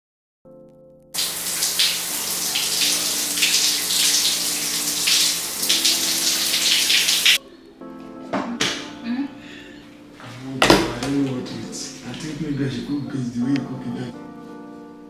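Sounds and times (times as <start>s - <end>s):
shower spraying water: 1.2s - 7.4s.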